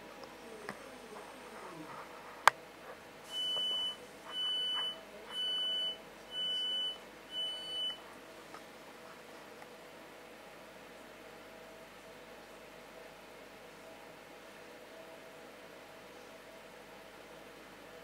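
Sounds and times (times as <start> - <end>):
high steady warning beeps: 3.3 - 8.0.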